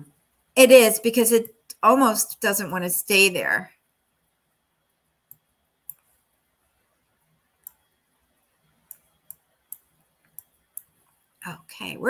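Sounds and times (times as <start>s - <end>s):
computer mouse clicking: 5.3s - 6.2s, 7.6s - 7.9s, 8.7s - 11.2s.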